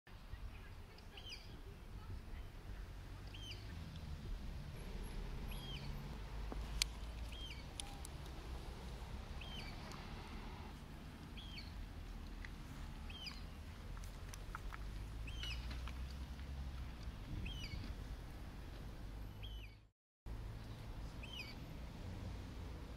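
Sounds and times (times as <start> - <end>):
small bird calling: 5.4 - 6.0, 7.2 - 8.1, 9.3 - 10.3, 11.3 - 11.8, 13.0 - 13.6, 15.2 - 15.8.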